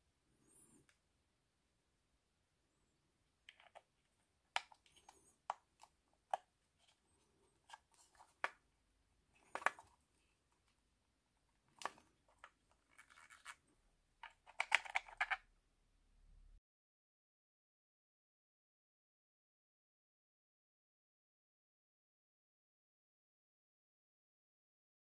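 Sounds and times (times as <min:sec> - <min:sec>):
small plastic parts clicking: 0:03.5 - 0:03.9, 0:14.2 - 0:15.4.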